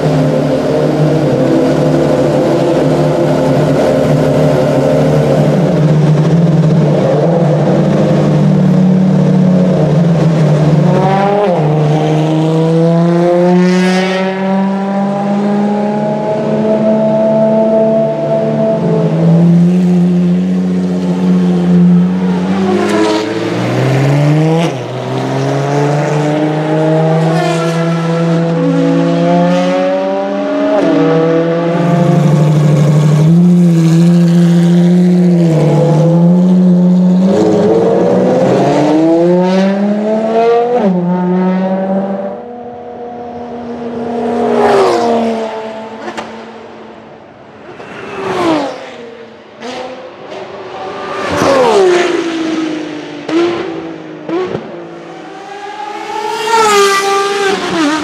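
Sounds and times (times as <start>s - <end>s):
race car engines revving: 0.0s - 58.0s
race cars passing fast: 0.0s - 58.0s.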